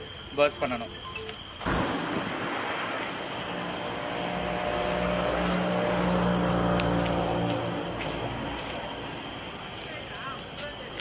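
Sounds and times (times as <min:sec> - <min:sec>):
engine drone: 0:01.6 - 0:09.7.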